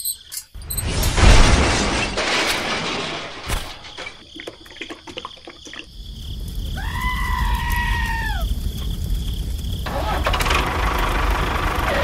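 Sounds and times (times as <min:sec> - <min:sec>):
explosion: 0:00.8 - 0:04.1
small crackles and clicks: 0:05.0 - 0:11.2
low engine rumble: 0:09.8 - 0:12.0.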